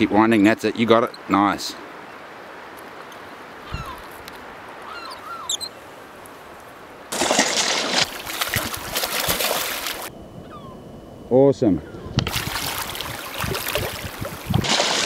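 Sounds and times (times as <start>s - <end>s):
quiet river background: 0.0s - 15.0s
bird chirps: 4.8s - 5.8s, 10.4s - 10.9s
fish splashing in water: 7.1s - 10.1s, 12.2s - 15.0s.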